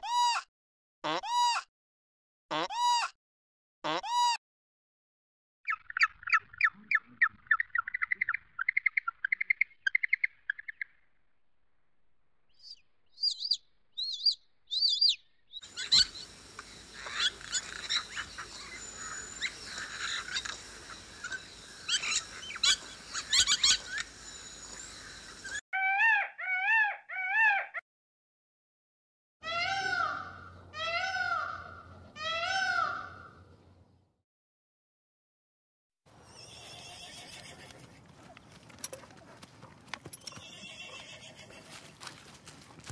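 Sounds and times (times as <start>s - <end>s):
bird calls: 12.6s - 27.7s
steady outdoor hiss: 15.6s - 25.6s.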